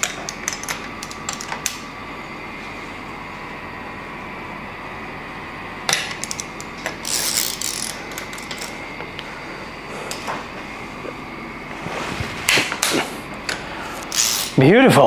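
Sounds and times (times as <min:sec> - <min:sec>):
ratchet clicking: 0:06.2 - 0:08.8, 0:14.0 - 0:14.5.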